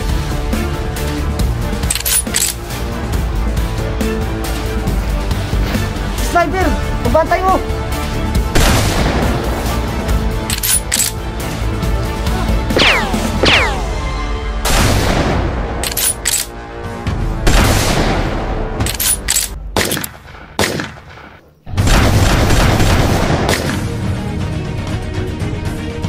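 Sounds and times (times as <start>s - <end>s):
background music: 0.0s - 26.0s
gunshots: 8.5s - 9.5s, 12.8s - 14.0s, 17.4s - 24.0s.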